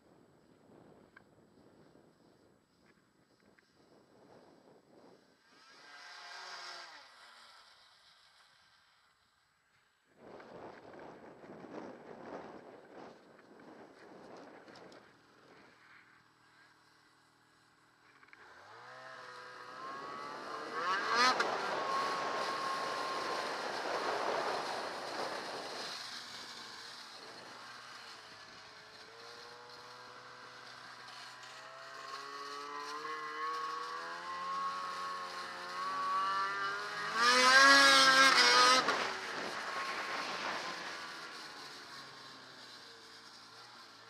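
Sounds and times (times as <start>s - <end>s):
snowmobile engine revving: 5.5s - 7.9s, 18.5s - 44.0s.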